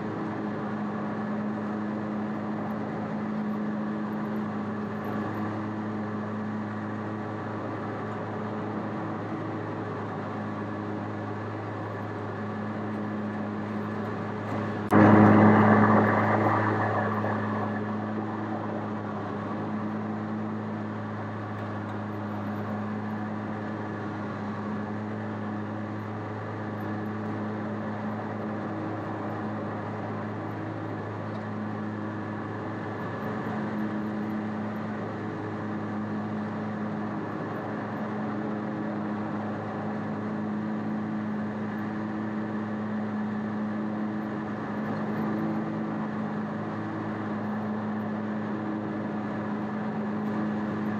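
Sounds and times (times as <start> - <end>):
mower engine running: 0.0 - 34.0.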